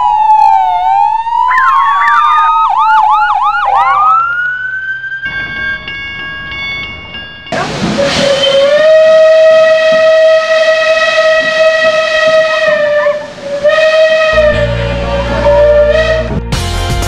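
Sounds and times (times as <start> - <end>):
steam locomotive whistle blast: 7.6 - 16.4.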